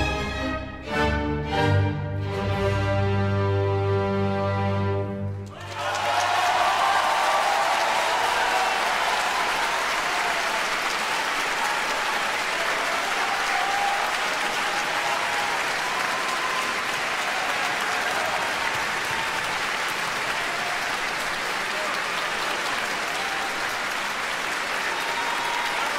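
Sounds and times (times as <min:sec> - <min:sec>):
audience applauding: 0:05.4 - 0:25.9.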